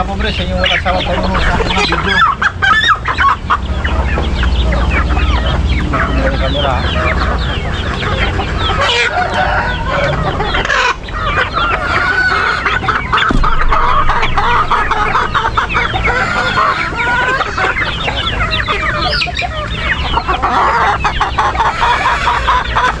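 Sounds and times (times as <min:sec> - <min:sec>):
chickens clucking and calling: 0:00.0 - 0:23.0
steady low rumble: 0:12.9 - 0:17.0.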